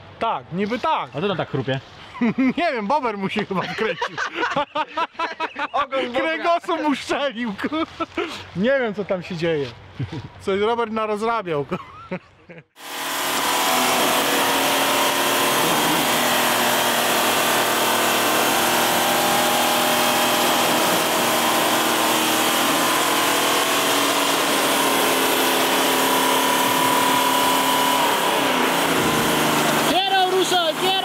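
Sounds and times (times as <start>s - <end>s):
off-road vehicle motor whining: 12.8s - 31.0s.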